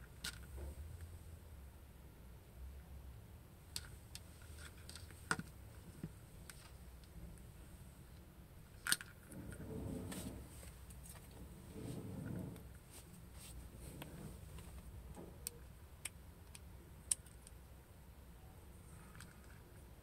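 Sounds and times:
cord rustling: 3.7 - 7.7, 8.7 - 15.8.

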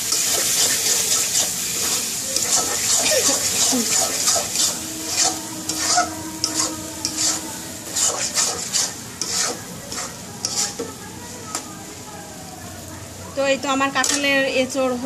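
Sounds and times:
spatula scraping a wok: 0.0 - 11.7
frying hiss: 0.0 - 15.0.

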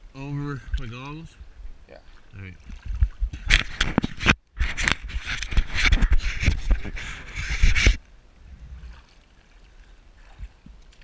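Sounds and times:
water lapping: 0.6 - 4.0, 8.4 - 11.0
water splashing against camera: 2.1 - 11.0.

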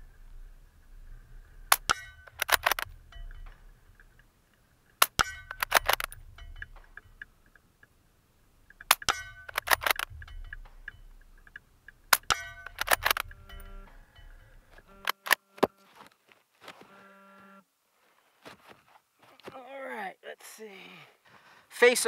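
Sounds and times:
suppressed rifle shots: 1.7 - 3.7, 5.0 - 7.2, 8.7 - 15.4
rifle bolt metallic clicks: 1.7 - 4.3, 4.9 - 8.0, 8.6 - 15.4.

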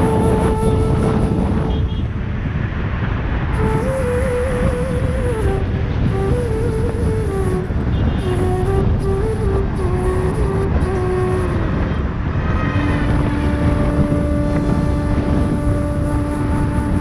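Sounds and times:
road noise: 0.0 - 17.0
wind noise: 0.0 - 17.0.

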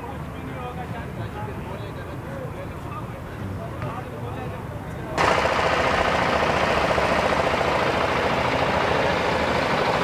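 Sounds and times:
engine-like mechanical running: 5.2 - 10.0.

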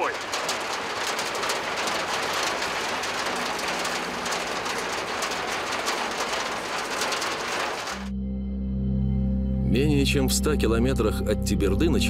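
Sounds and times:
heavy rain on vehicle roof: 0.0 - 8.1.

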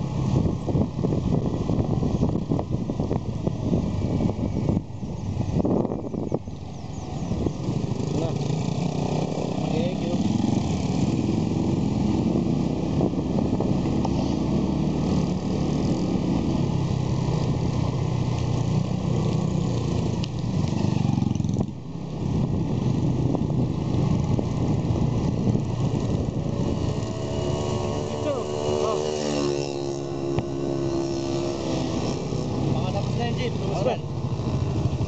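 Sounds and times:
motorcycle engine running: 0.0 - 35.0.

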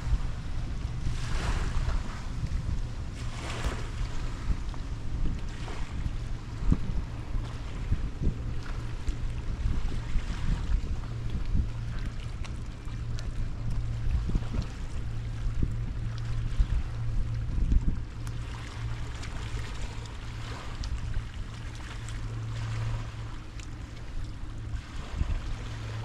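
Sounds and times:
steady low hum: 0.0 - 26.0
wind buffeting microphone: 0.0 - 26.0.

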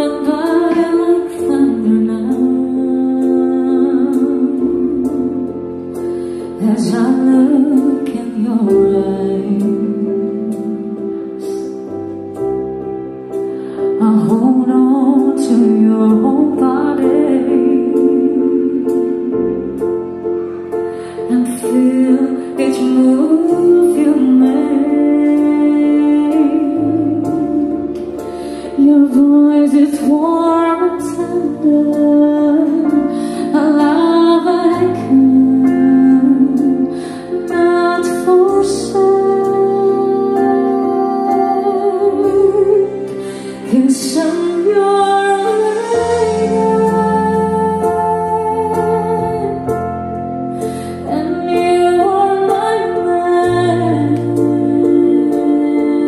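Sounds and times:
slow song over loudspeakers: 0.0 - 56.0
person singing: 20.8 - 56.0.

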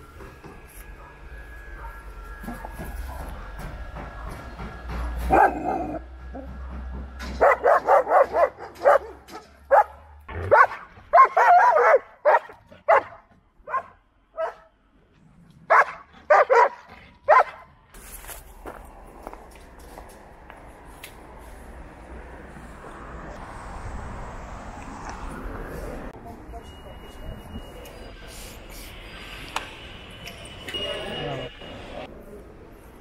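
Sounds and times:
dog barking: 5.3 - 6.0, 7.4 - 14.7, 15.7 - 17.7.

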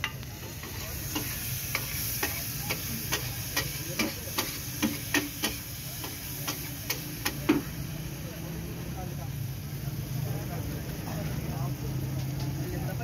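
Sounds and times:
metal spatula clacking on griddle: 0.0 - 7.6
faint frying sizzle: 0.0 - 13.0.

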